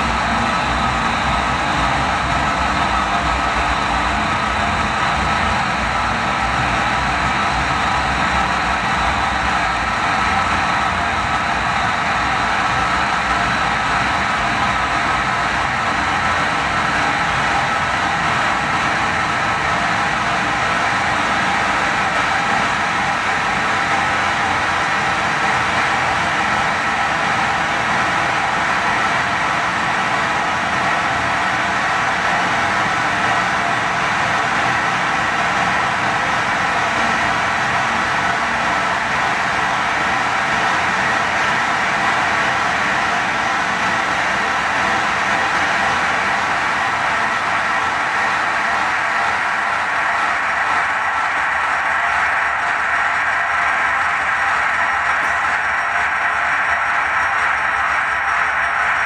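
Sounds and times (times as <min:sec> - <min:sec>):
harsh electronic noise music: 0:00.0 - 0:59.0.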